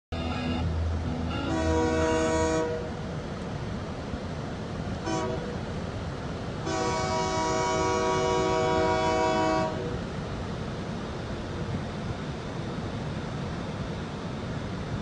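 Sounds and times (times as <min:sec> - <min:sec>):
low rumble: 0:00.1 - 0:02.3
locomotive air horn blasts: 0:01.2 - 0:03.0, 0:05.0 - 0:05.6, 0:06.6 - 0:10.0.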